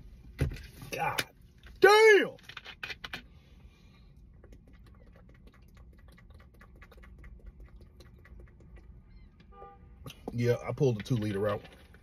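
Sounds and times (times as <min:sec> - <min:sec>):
soda crackling while drinking: 0:04.4 - 0:09.0.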